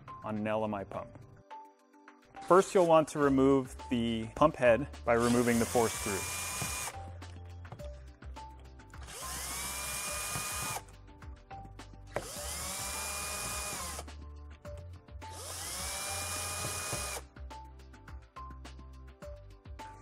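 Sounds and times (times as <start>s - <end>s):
background music: 0.0s - 20.0s
cordless drill motor whine: 5.4s - 7.0s, 9.0s - 10.8s, 12.2s - 14.0s, 15.3s - 17.2s.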